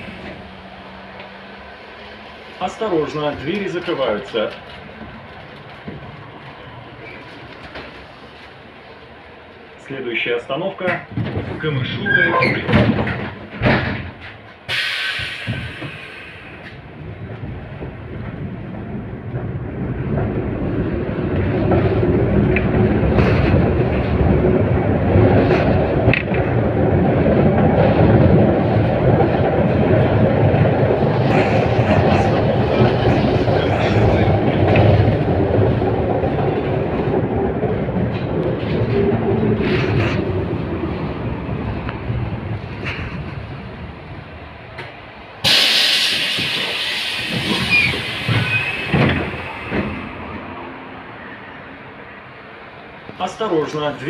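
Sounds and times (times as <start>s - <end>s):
tram thump: 0.0s - 9.7s, 10.7s - 51.1s
tram motors and wheels rumbling: 0.0s - 54.0s
burst of air hiss: 14.7s - 16.6s, 45.4s - 49.7s.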